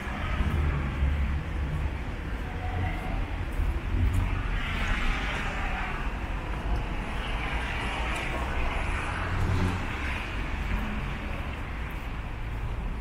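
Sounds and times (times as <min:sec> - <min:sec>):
road traffic rushing: 0:00.0 - 0:13.0
vehicle passing: 0:07.4 - 0:12.0.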